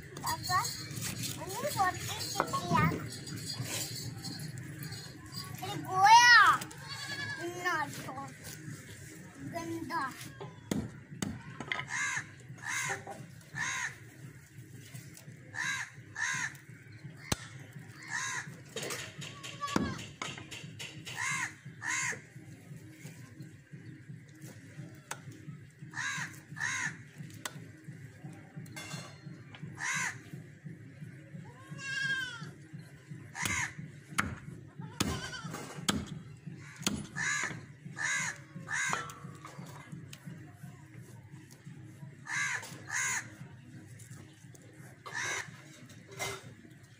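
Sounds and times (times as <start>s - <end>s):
crow cawing: 11.8s - 14.0s, 15.5s - 16.6s, 18.0s - 18.6s, 21.1s - 22.2s, 25.9s - 27.0s, 29.8s - 30.2s, 33.4s - 33.9s, 36.5s - 39.5s, 42.2s - 43.4s, 45.0s - 45.7s.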